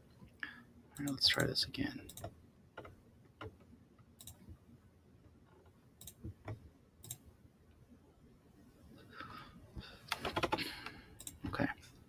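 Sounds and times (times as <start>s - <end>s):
computer mouse clicking: 2.1s - 3.6s, 4.2s - 4.5s, 6.0s - 7.2s, 10.1s - 11.4s.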